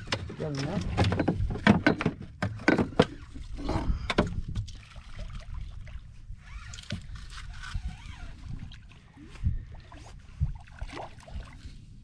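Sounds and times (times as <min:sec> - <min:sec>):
sharp knocks and clicks: 0:00.0 - 0:03.2.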